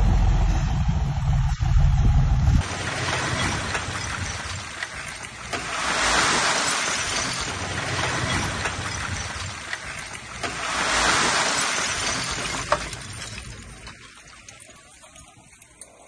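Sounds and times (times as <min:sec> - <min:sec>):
truck engine running low: 0:00.0 - 0:04.8.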